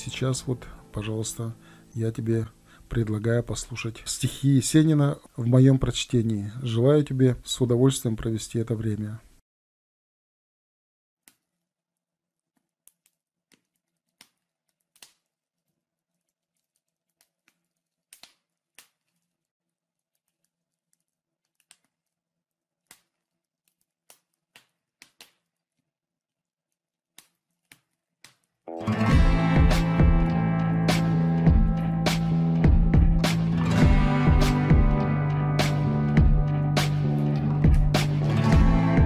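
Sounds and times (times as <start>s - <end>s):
wood fire crackling: 0.0s - 6.5s, 12.5s - 25.8s.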